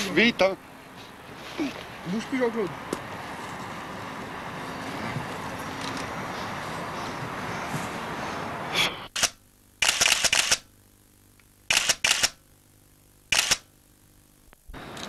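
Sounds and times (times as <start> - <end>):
steady outdoor hiss: 0.0 - 15.0
camera shutter clicks: 9.1 - 10.7, 11.7 - 12.4, 13.3 - 13.7.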